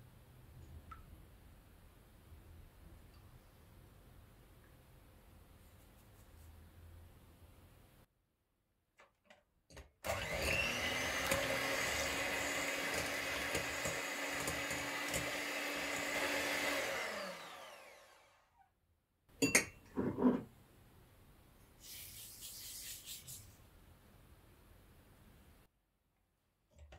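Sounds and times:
electric hand mixer: 10.0s - 18.6s.

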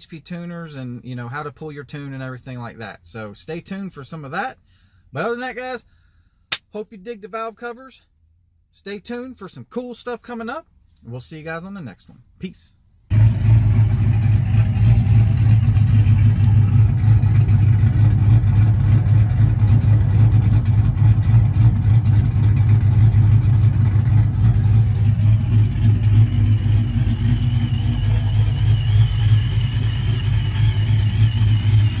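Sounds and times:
truck engine idling: 13.1s - 32.0s
faint wavering whine: 23.2s - 32.0s.

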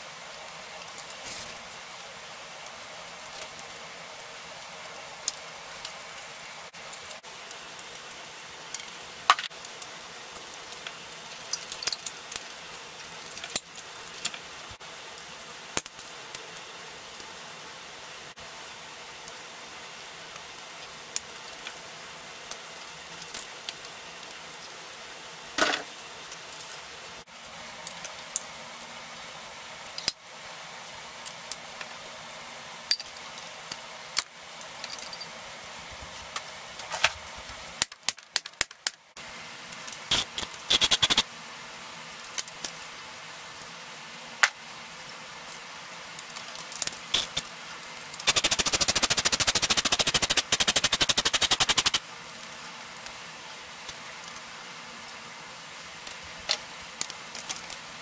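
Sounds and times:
low hiss: 0.0s - 37.9s, 39.0s - 58.0s.

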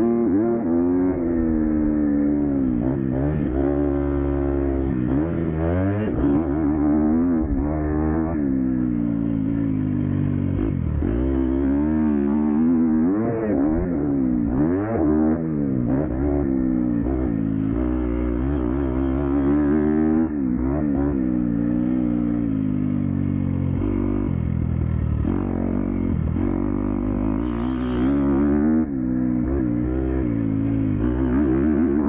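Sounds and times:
dirt bike engine revving: 0.0s - 32.0s.

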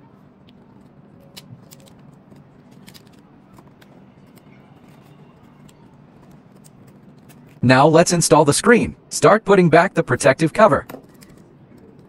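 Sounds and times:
plastic film peeling: 0.5s - 7.6s.

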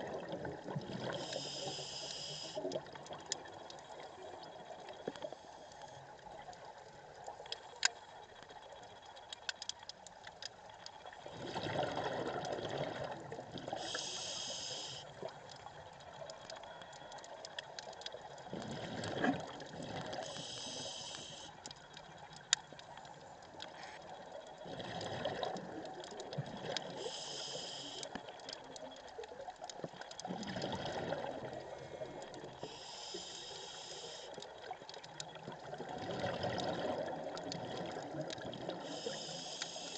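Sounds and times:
regulator hiss on inhale: 1.1s - 2.8s, 13.7s - 15.3s, 20.1s - 21.7s, 26.9s - 28.2s, 31.8s - 34.6s, 38.7s - 39.9s
exhaled bubbles rushing: 11.3s - 13.7s, 18.5s - 20.2s, 24.6s - 25.8s, 30.2s - 31.8s, 35.5s - 38.8s.

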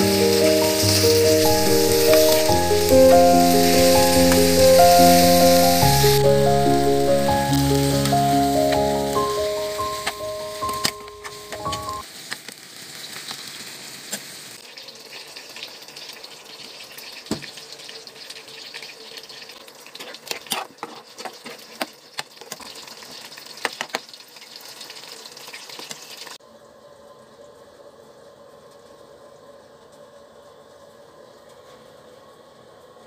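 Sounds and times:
food sizzling in a pan: 0.0s - 26.4s
utensil scraping a pan: 20.0s - 21.8s.

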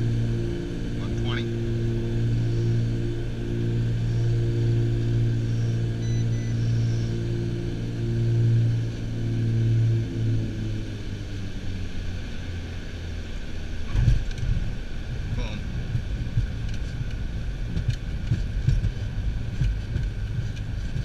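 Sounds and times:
twin piston engines droning: 0.0s - 21.0s
short high beeps: 6.0s - 6.6s
runway rolling rumble: 7.4s - 21.0s.

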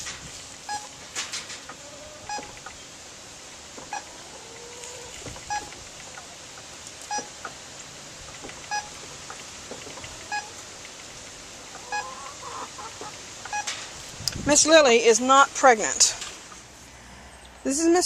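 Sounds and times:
short electronic beeps: 8.7s - 9.0s, 13.5s - 13.7s.

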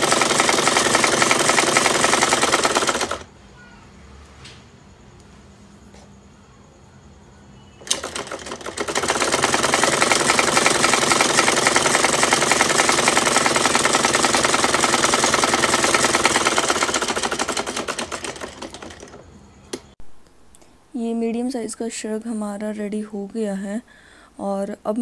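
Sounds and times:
sewing machine click: 0.0s - 3.2s, 7.8s - 19.9s
sewing machine stitching: 0.0s - 3.2s, 7.8s - 19.9s.

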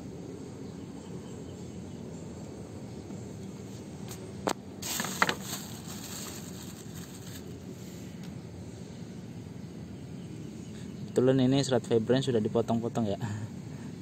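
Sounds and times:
outdoor background noise: 0.0s - 14.0s
crackling rustle: 3.6s - 8.4s.

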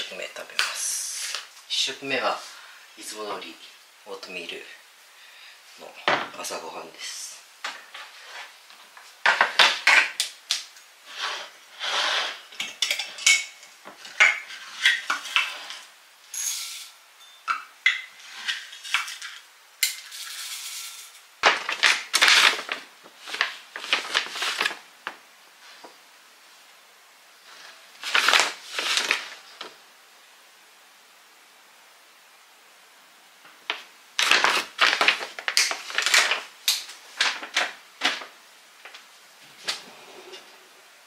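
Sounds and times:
dishes clinking: 12.6s - 15.5s, 16.3s - 18.6s
oats rustling: 20.1s - 25.0s.

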